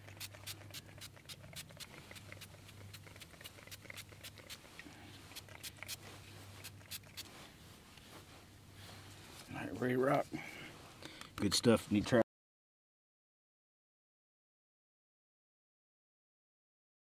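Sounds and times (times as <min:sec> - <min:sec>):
pump spray bottle hisses: 0:00.0 - 0:07.4.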